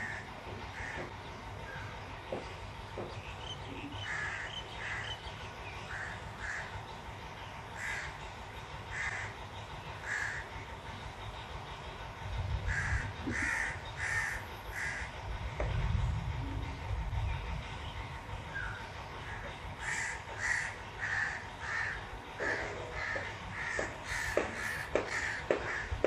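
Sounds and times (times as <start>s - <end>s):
crows cawing: 0.0s - 1.1s, 4.0s - 5.2s, 5.9s - 6.8s, 7.8s - 8.2s, 8.9s - 9.4s, 10.0s - 10.5s, 12.7s - 15.1s, 19.3s - 26.0s.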